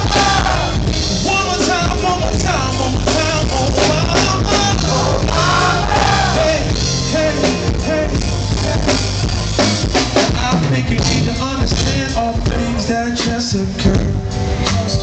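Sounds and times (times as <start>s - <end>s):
drum kit beat: 0.0s - 15.0s
keyboard: 0.0s - 15.0s
live band playing: 0.0s - 15.0s.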